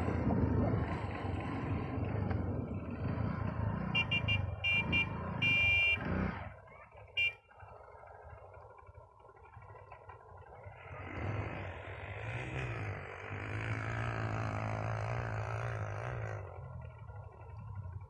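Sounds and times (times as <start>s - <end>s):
small motorbike engine revving: 10.8s - 17.2s.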